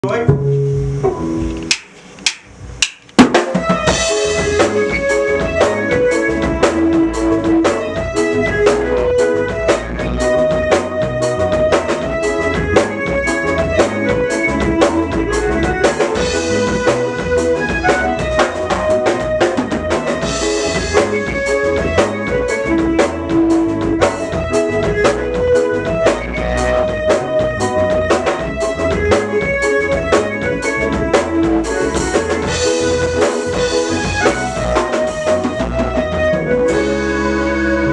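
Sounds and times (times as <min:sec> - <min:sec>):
drum kit: 0:00.0 - 0:37.9
electric bass guitar: 0:00.0 - 0:37.9
sharp clicks: 0:01.6 - 0:03.2
electronic keyboard: 0:03.4 - 0:37.9.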